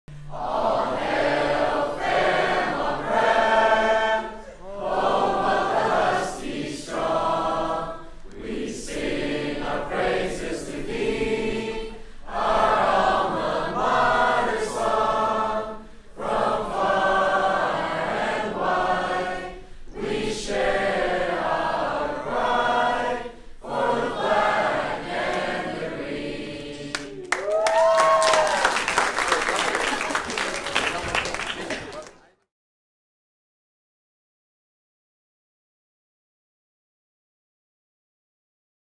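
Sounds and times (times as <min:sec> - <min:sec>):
group of voices singing: 0:00.3 - 0:27.2.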